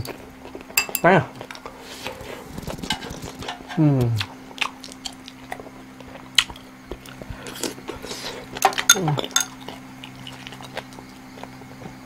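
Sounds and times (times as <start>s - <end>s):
man chewing food: 0.0s - 12.0s
chopsticks and dishes clicking: 2.9s - 3.9s.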